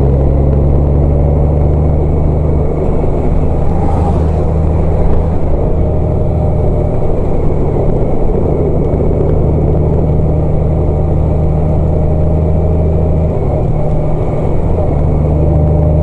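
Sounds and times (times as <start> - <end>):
road noise: 0.0 - 16.0
vehicle engine hum: 0.0 - 16.0.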